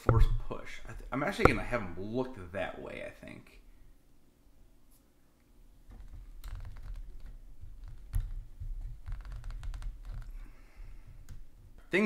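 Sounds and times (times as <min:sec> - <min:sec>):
louder knock: 0:01.4 - 0:01.8
small plastic clicks and rustles: 0:05.9 - 0:10.4.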